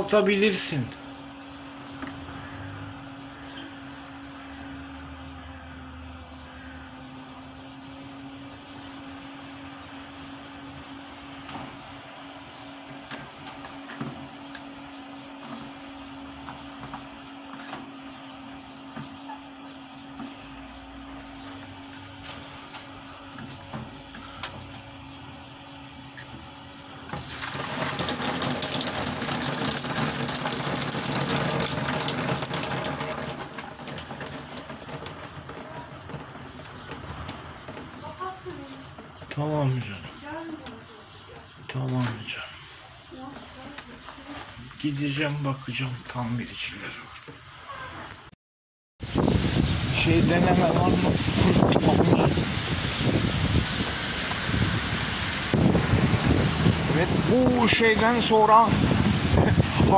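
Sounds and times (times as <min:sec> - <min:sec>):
gas boiler hum and rushing: 0:00.0 - 0:48.3, 0:49.0 - 0:59.9
water rushing through pipes: 0:26.2 - 0:38.7, 0:49.0 - 0:59.9.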